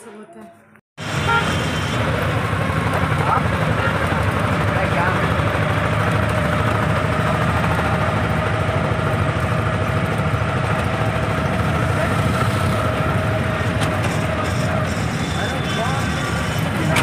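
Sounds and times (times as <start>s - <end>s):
vehicle engine clattering: 2.0s - 17.0s.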